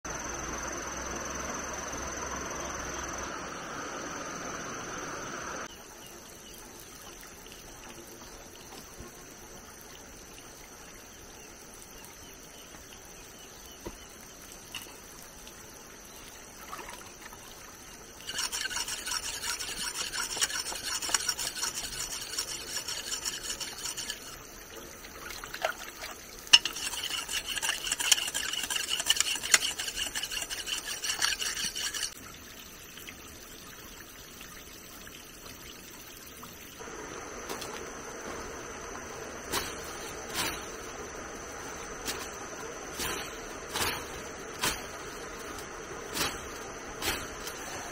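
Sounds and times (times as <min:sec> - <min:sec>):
water splashing: 0:16.3 - 0:32.3, 0:36.3 - 0:47.9
hands scraping stone: 0:18.3 - 0:24.4, 0:26.6 - 0:32.2.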